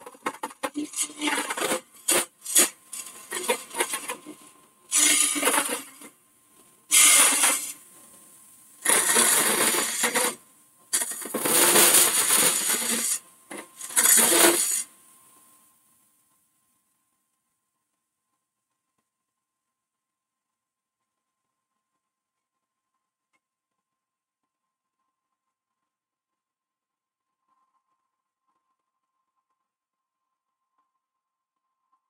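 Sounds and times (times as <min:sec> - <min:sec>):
lathe tool scraping wood: 0:00.6 - 0:06.1, 0:06.9 - 0:07.8, 0:08.8 - 0:10.4, 0:11.0 - 0:13.2, 0:13.8 - 0:14.9.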